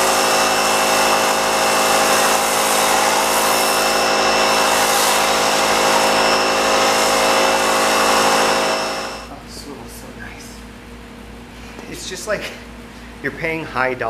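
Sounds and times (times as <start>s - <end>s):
foam spray gun hissing: 0.0s - 9.3s
pressure washer motor whine: 0.0s - 9.4s.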